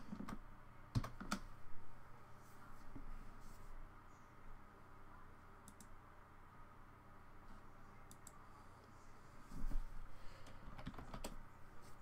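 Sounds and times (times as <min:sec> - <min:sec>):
computer mouse clicks: 0:05.6 - 0:06.0, 0:08.1 - 0:08.4, 0:10.4 - 0:11.4.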